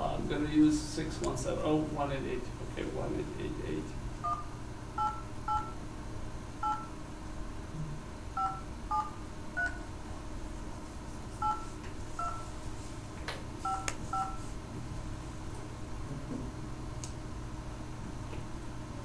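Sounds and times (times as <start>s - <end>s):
keypad touch-tone beeps: 4.2s - 5.8s, 6.6s - 6.9s, 8.4s - 9.8s, 11.4s - 12.5s, 13.6s - 14.4s.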